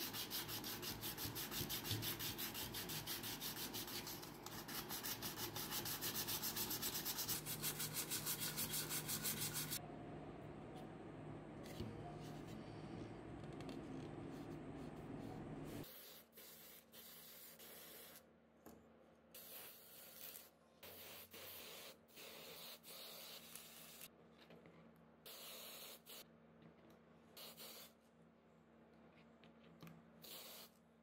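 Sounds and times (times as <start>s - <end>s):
aerosol spray can hissing: 30.2s - 30.7s.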